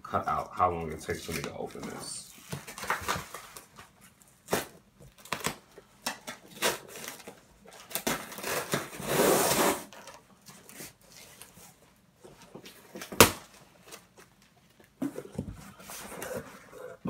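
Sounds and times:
package rustling and snapping: 0:01.2 - 0:08.9
package ripping open: 0:04.5 - 0:05.6, 0:06.3 - 0:10.2.

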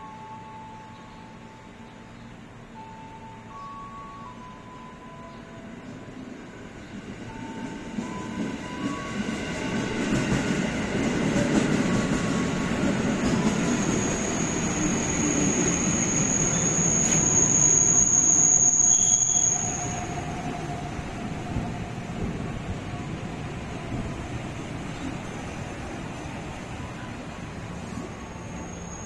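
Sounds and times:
train wheels rumbling on rails: 0:06.0 - 0:29.0
high wheel squeal: 0:13.3 - 0:20.7, 0:28.3 - 0:29.0.

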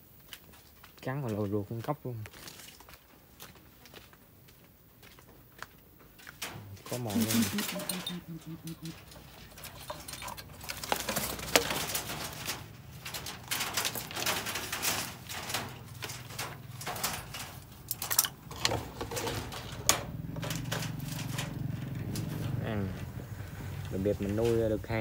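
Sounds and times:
wire bird cage being handled: 0:06.2 - 0:23.0.

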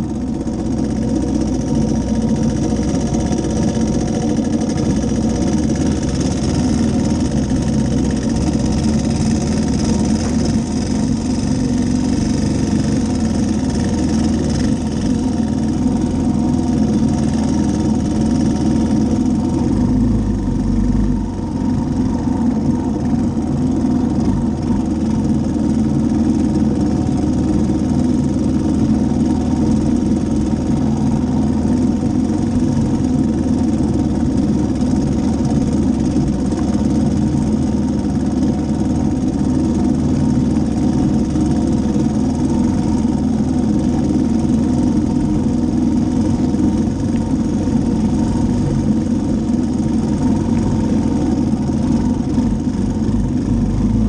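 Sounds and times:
atv engine running: 0:00.0 - 0:54.0.

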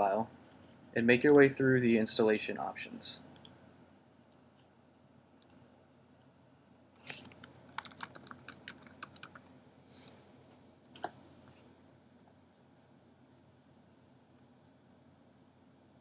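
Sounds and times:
faint keyboard typing: 0:00.7 - 0:01.5, 0:03.3 - 0:03.6, 0:05.4 - 0:05.6, 0:07.0 - 0:10.2.

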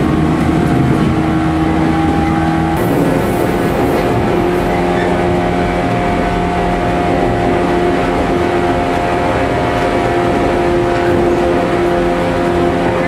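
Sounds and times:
train motors humming: 0:00.0 - 0:13.0
train wheels rumbling on rails: 0:00.0 - 0:13.0.

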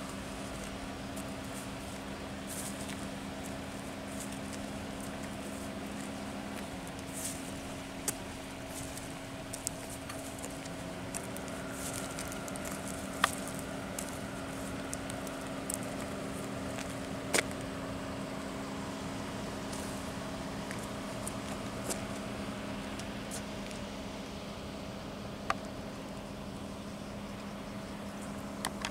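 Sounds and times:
low mechanical hum: 0:00.0 - 0:28.9.

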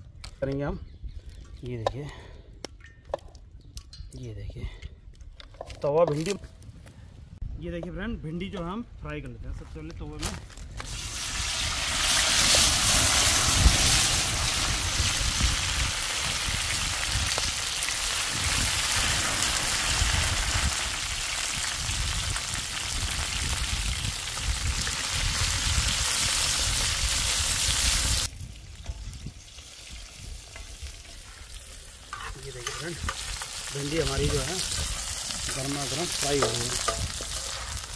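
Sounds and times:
okra sizzling in hot oil: 0:10.9 - 0:37.9.

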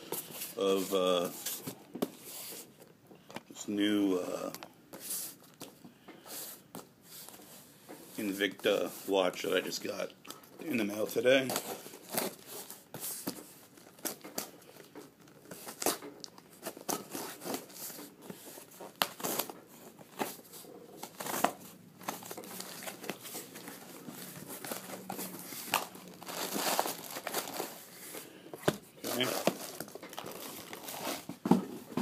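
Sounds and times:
cardboard rustling and crinkling: 0:10.9 - 0:32.0.

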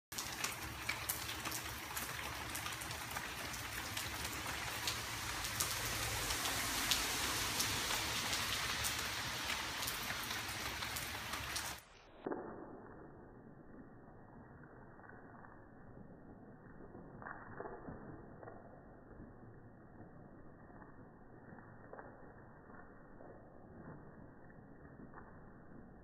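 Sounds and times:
raindrops ticking sharply: 0:00.1 - 0:11.9
steady rain: 0:00.1 - 0:12.1.

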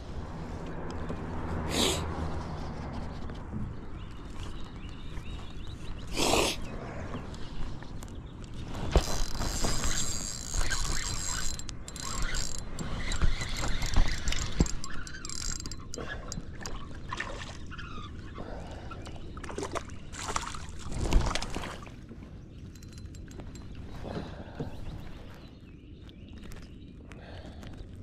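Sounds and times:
water splashing and sloshing: 0:07.0 - 0:22.4
knocks and clicks from handling: 0:08.9 - 0:16.8.

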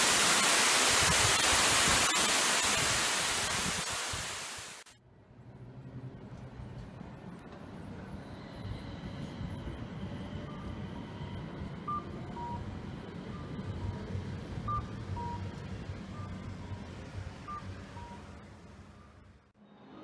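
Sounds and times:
street traffic rumble: 0:05.2 - 0:19.5
tram pulling away: 0:05.8 - 0:19.2.

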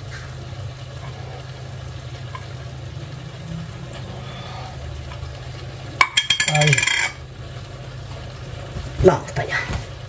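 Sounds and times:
kitchen appliance humming: 0:00.0 - 0:10.0.

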